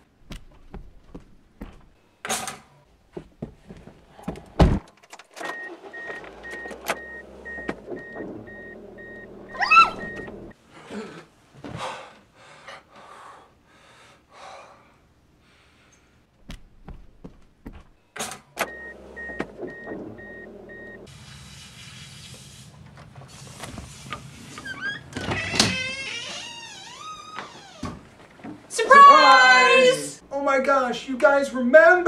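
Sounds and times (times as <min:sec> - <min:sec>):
car warning chime beeping: 0:05.4 - 0:10.6, 0:18.6 - 0:21.1
brief rising squeak: 0:05.5 - 0:10.3
low engine hum: 0:18.7 - 0:21.1.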